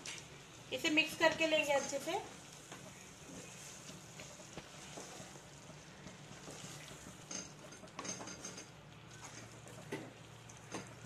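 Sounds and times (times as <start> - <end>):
wooden spatula scraping pan: 2.7 - 5.6.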